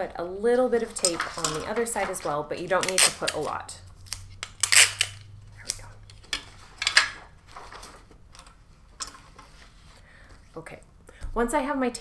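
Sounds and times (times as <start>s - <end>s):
adhesive tape ripping: 2.6s - 5.9s
paper rustling: 5.6s - 10.4s.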